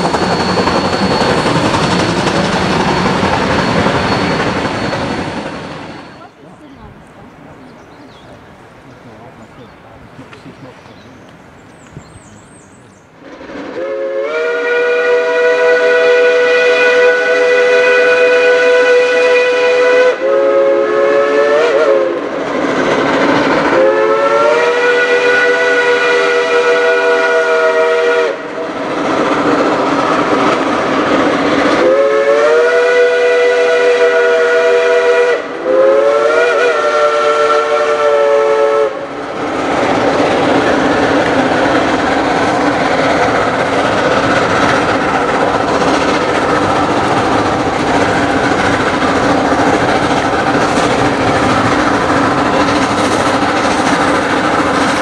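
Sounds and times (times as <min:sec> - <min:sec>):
steam locomotive whistle blasts: 0:00.0 - 0:06.3, 0:13.7 - 0:22.3, 0:23.7 - 0:28.7, 0:31.8 - 0:39.1
locomotive exhaust chuffing: 0:00.0 - 0:21.1, 0:40.0 - 0:55.0.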